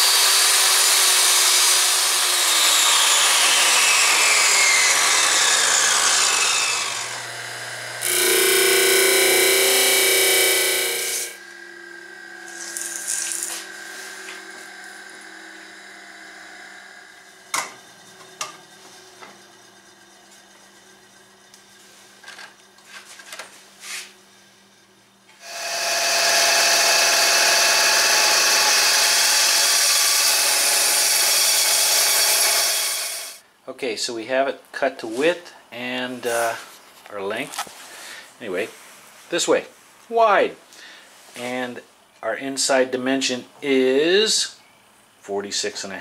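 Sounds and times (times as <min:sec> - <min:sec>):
band saw cutting wood: 0:00.0 - 0:19.6, 0:25.4 - 0:33.4
power tool running quietly: 0:00.1 - 0:22.6, 0:25.3 - 0:33.4.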